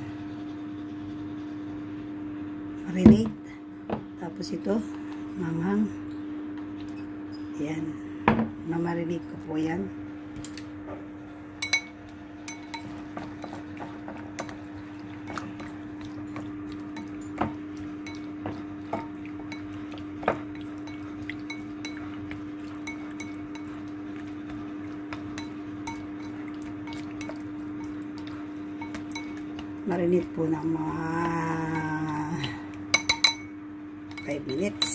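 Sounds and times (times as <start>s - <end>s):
steady low hum: 0.0s - 34.9s
chopsticks tapping ceramic bowl: 11.6s - 29.7s, 31.1s - 33.5s, 34.1s - 34.9s.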